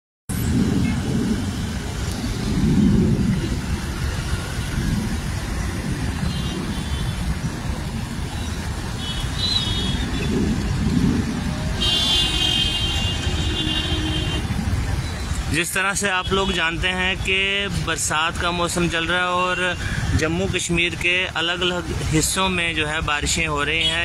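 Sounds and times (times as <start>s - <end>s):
wind on microphone: 0.3s - 15.5s
road traffic rumble: 0.3s - 24.0s.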